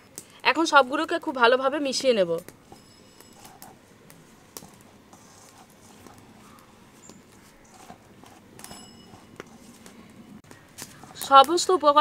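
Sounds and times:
dry flour stirred in bowl: 1.2 - 10.1.

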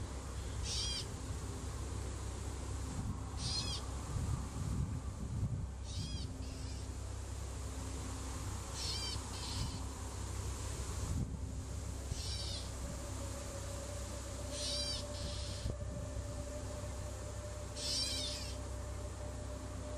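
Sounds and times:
low steady rumble: 0.0 - 19.9
bird calling: 0.4 - 1.1, 3.4 - 3.9, 5.8 - 6.9, 8.7 - 9.9, 12.0 - 12.8, 14.4 - 15.8, 17.7 - 18.7.

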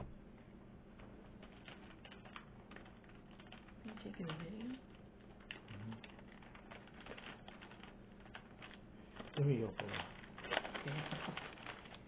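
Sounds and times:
rustling: 5.2 - 12.0
person murmuring mm: 5.7 - 6.1.

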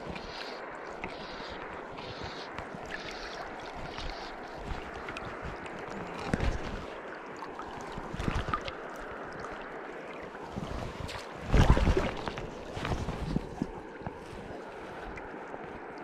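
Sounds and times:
arm brushing microphone: 0.0 - 6.9
river water rushing: 0.0 - 16.0.

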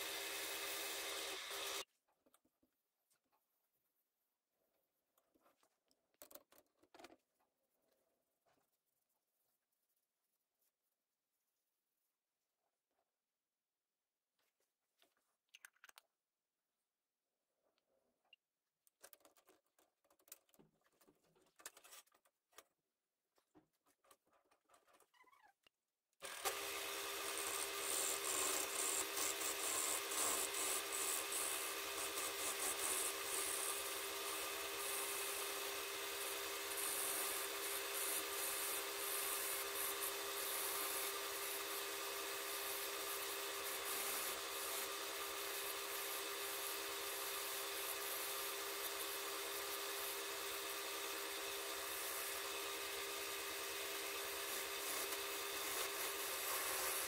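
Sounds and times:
tool scraping spinning wood: 26.3 - 57.0.

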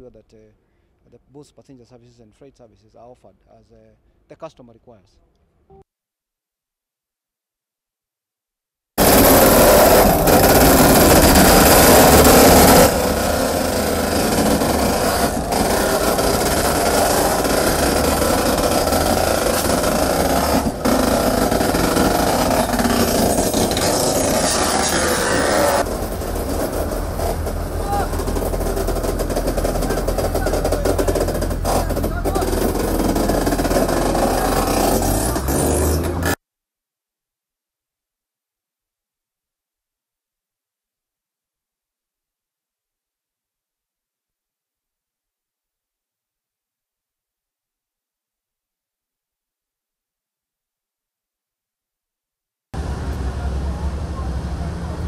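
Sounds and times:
machinery humming: 9.0 - 36.4
train wheels rolling on rail track: 9.0 - 36.4
workers chattering: 9.0 - 36.4.

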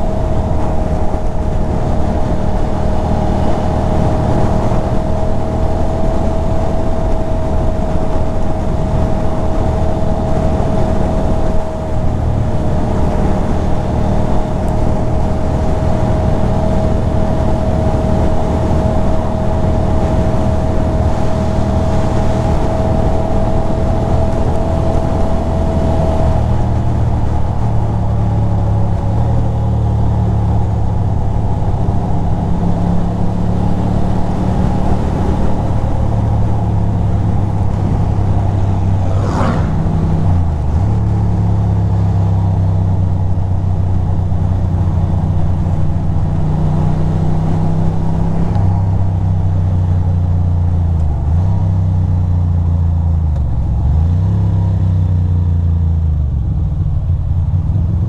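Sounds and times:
motorcycle engine running: 0.0 - 54.0
wind rushing: 32.9 - 42.5.

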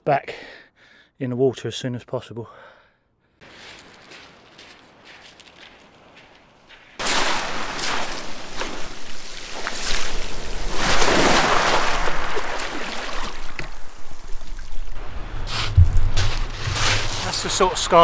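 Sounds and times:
surf washing on shingle: 7.0 - 18.0.

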